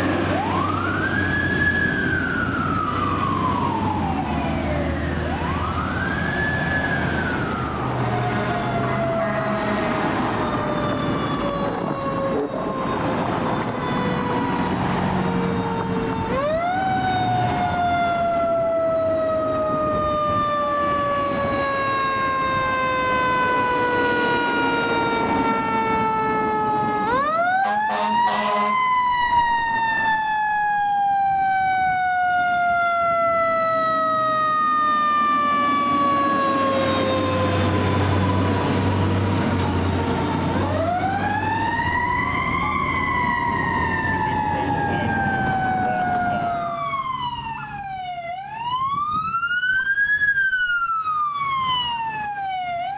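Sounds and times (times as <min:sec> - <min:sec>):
fire engine rumbling: 0:00.0 - 0:52.9
fire engine siren wailing: 0:00.0 - 0:52.9.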